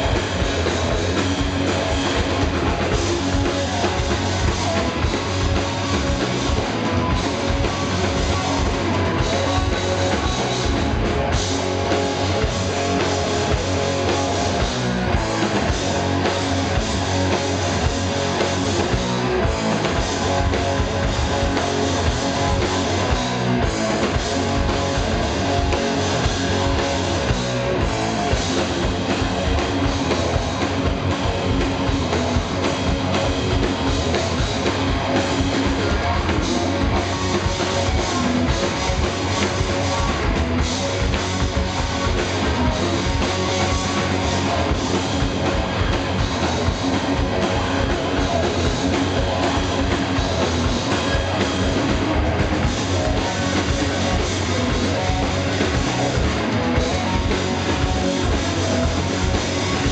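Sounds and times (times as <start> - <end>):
bass guitar: 0.0 - 59.9
distorted electric guitars: 0.0 - 59.9
drum kit: 0.0 - 59.9.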